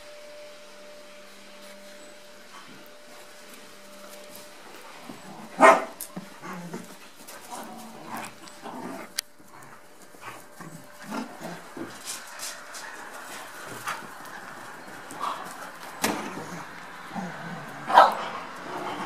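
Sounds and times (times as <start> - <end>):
dogs playing rough: 2.4 - 19.0
dog barking: 5.6 - 6.0, 17.9 - 18.2.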